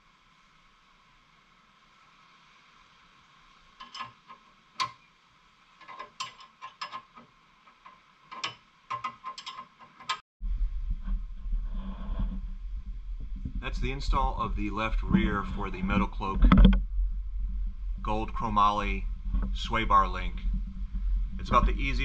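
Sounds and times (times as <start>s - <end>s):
ratcheting wrench clicking: 5.8s - 10.2s
steady low rumble: 10.4s - 22.0s.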